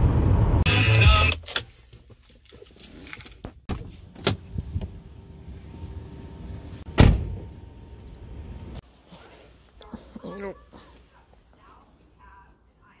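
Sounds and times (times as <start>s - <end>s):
car door shutting: 6.8s - 7.5s.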